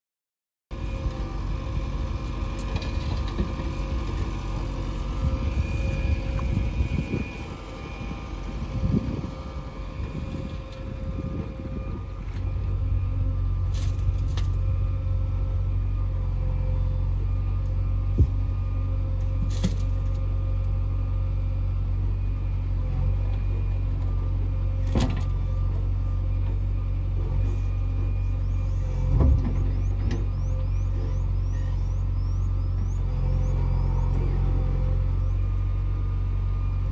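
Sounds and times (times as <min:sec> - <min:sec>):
heavy diesel engine running: 0:00.7 - 0:36.9.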